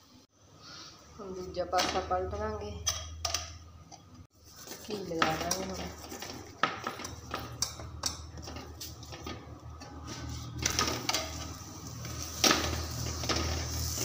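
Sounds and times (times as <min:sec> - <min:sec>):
steel spoon scraping and tapping: 0:04.9 - 0:11.4
ghee sizzling on griddle: 0:10.1 - 0:14.0.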